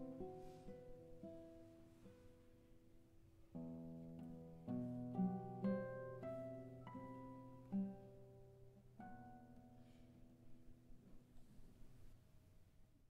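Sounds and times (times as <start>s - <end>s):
classical guitars plucking notes: 0.0s - 11.6s.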